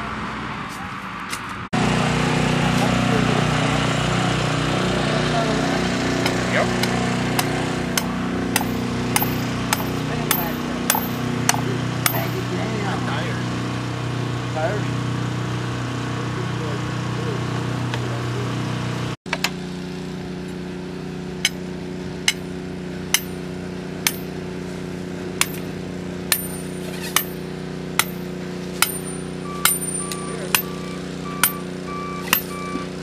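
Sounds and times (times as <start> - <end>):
diesel engine running: 0.0 - 33.0
backup alarm beeping: 29.4 - 33.0.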